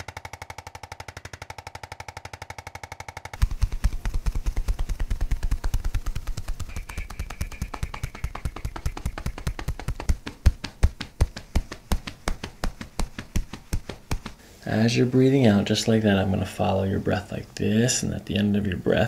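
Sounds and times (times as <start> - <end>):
hands slapping on bare back: 3.4 - 14.4.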